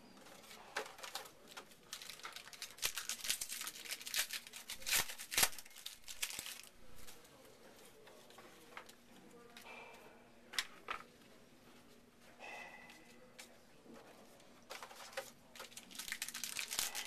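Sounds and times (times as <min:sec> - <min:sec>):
foil wrapper crinkling and tearing: 0:00.9 - 0:07.2, 0:15.1 - 0:17.0.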